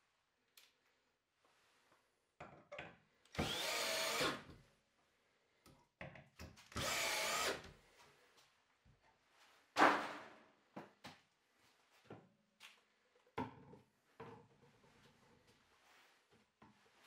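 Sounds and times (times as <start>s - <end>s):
cordless drill driving into wood: 3.3s - 4.5s, 6.7s - 7.7s.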